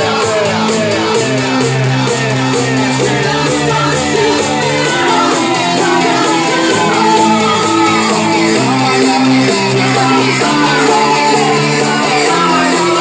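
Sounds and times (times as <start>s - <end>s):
crowd shouting: 0.0s - 13.0s
electronic dance music: 0.0s - 13.0s.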